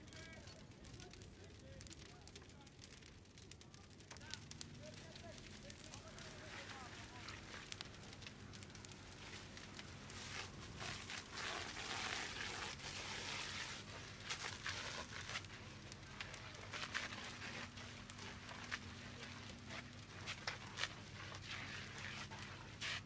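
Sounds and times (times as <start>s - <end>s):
burning wood crackling: 0.0s - 23.0s.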